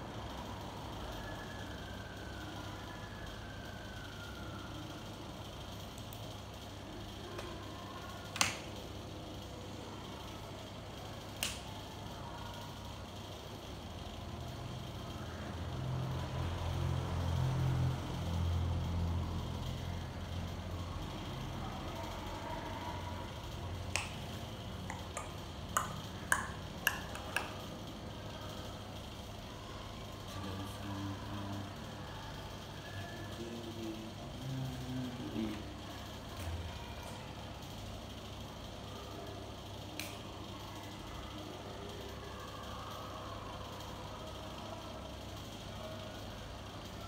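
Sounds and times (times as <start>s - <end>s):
steady low hum: 0.0s - 47.0s
sharp clicks: 11.3s - 11.8s, 23.9s - 27.8s.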